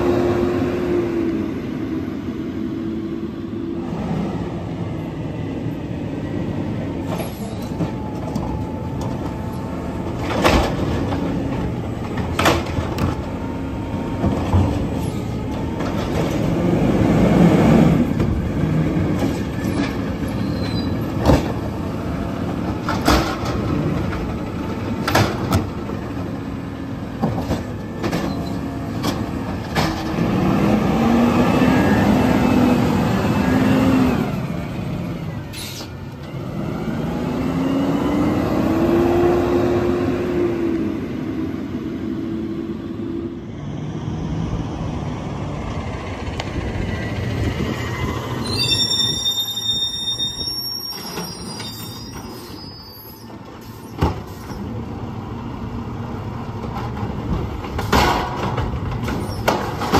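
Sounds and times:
sharp clanks from truck: 0:56.7 - 0:59.9.

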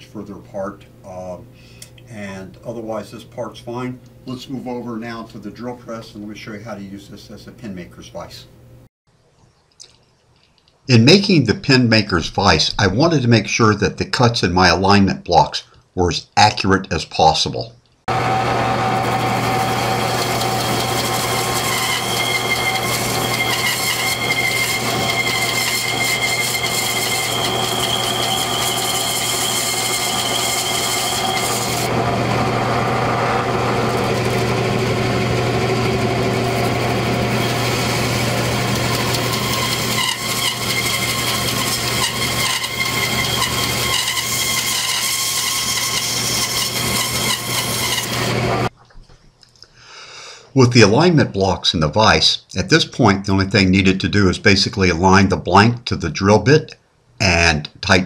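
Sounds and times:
bandsaw blade cutting wood: 0:18.1 - 0:48.7
bandsaw motor hum: 0:18.1 - 0:48.7.

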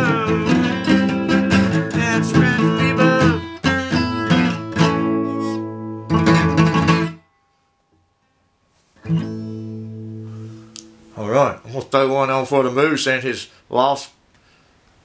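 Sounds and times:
acoustic guitar chords strummed: 0:00.0 - 0:11.5.

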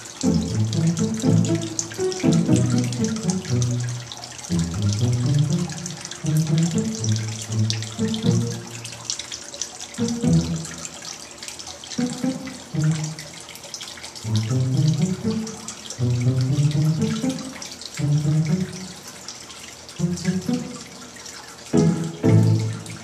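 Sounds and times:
background music with low notes: 0:00.0 - 0:09.0, 0:10.0 - 0:10.9, 0:12.0 - 0:13.4, 0:14.2 - 0:19.0, 0:20.0 - 0:21.0, 0:21.7 - 0:23.0
fountain water splashing: 0:00.0 - 0:23.0.

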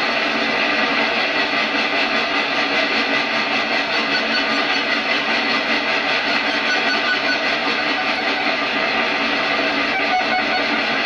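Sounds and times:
dense digital noise: 0:09.7 - 0:11.0.

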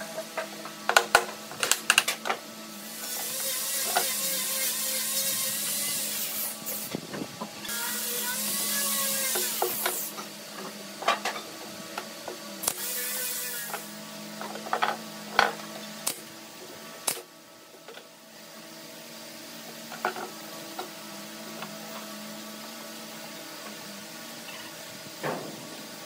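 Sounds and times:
pneumatic nailer clicks: 0:12.6 - 0:12.9.

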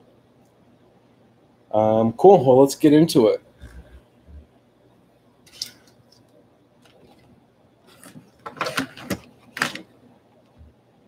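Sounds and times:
cardboard and plastic packaging rustling: 0:06.8 - 0:09.9.

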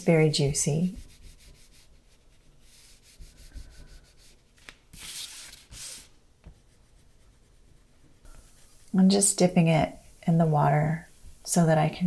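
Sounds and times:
crayon scribbling on paper: 0:00.8 - 0:04.4.

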